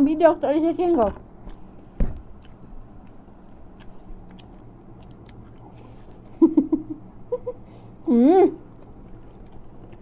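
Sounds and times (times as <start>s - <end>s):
chewing noodles: 2.4s - 6.3s.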